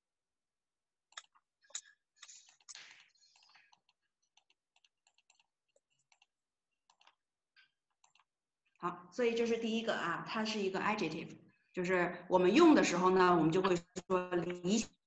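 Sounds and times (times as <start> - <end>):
computer keyboard and mouse clicking: 1.1 - 7.2, 7.9 - 8.3.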